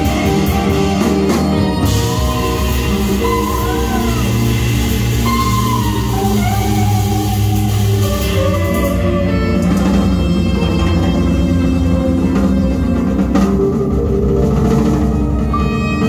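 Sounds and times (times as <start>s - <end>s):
sustained saxophone notes: 0.0s - 13.9s, 15.2s - 16.0s
drums: 0.0s - 16.0s.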